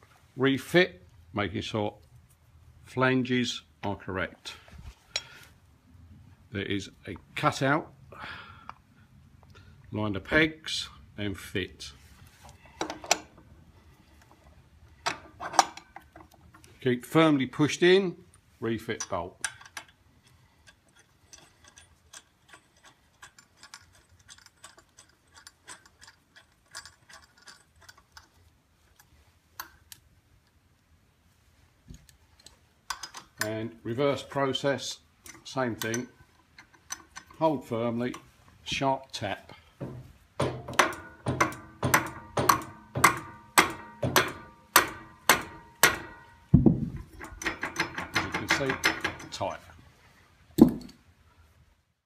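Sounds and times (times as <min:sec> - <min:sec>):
metal parts clicking: 0:18.8 - 0:30.0, 0:32.1 - 0:33.6, 0:35.1 - 0:38.4, 0:40.3 - 0:49.5
mallet striking metal wrench: 0:39.8 - 0:49.4.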